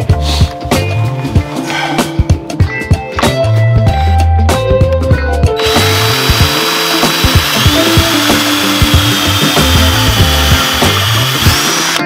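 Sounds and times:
cordless drill whining under load: 5.6 - 12.0.

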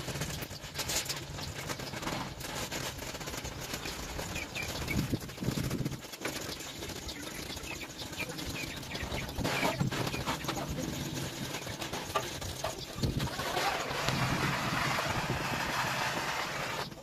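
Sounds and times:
faint birds calling: 6.4 - 13.9.

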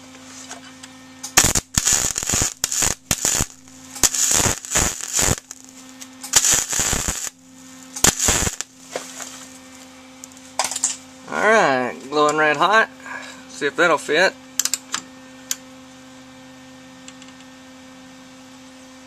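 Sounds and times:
welder arc crackling: 1.2 - 9.3.

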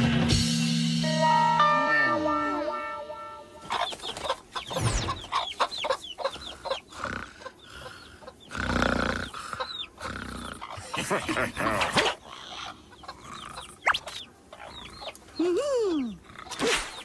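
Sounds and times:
cartoon hens clucking: 3.6 - 17.0.

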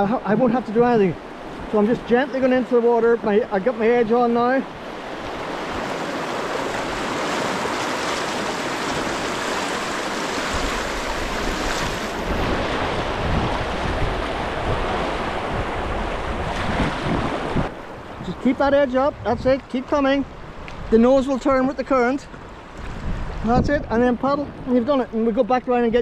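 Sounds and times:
white water rushing: 0.0 - 26.0
wind buffeting microphone: 0.0 - 26.0.

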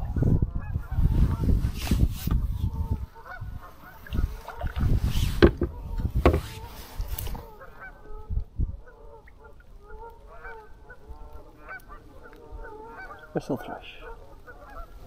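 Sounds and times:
knocks and rustles in canoe: 1.3 - 7.8
geese honking: 2.6 - 5.0, 6.6 - 15.0.

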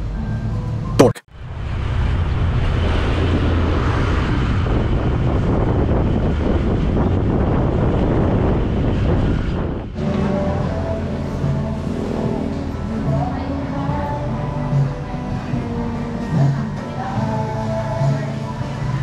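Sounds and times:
vehicle engine and road noise: 0.0 - 19.0
wind buffeting microphone: 2.4 - 10.1.

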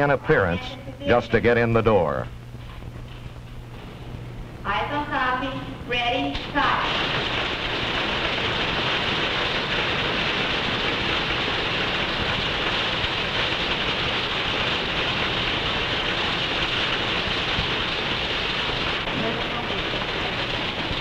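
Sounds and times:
many typewriters clattering: 6.3 - 21.0.

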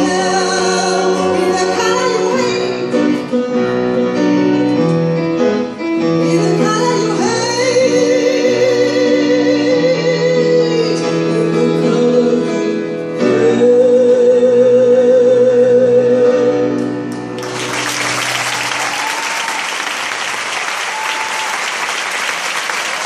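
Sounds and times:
grand piano accompaniment: 0.0 - 23.0
audience applause: 17.4 - 23.0.

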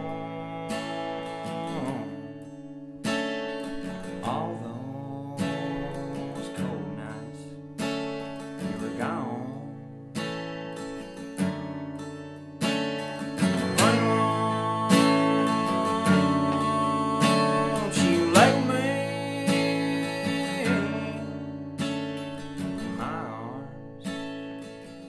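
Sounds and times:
man singing: 0.0 - 2.5, 3.7 - 7.7, 8.5 - 10.0, 13.2 - 24.3
acoustic guitar strumming: 0.0 - 25.0.

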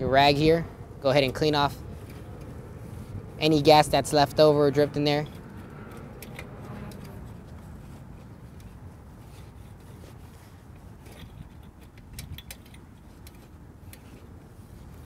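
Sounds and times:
cloth rag rustling: 7.1 - 11.8.

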